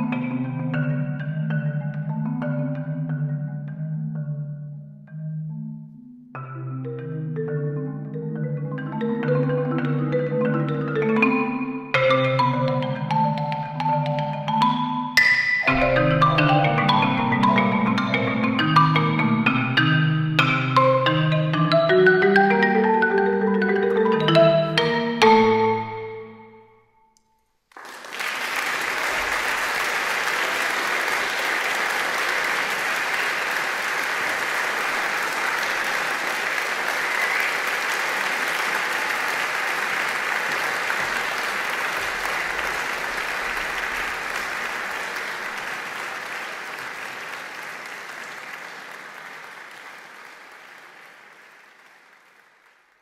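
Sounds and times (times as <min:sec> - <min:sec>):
marimba notes ringing: 0:00.0 - 0:26.8
audience applause: 0:27.7 - 0:53.0.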